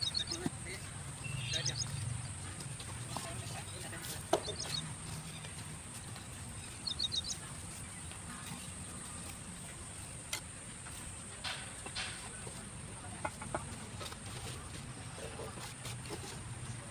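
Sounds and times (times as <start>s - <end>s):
bird chirping: 0.0s - 2.5s, 3.6s - 9.4s
low background noise: 0.0s - 16.9s.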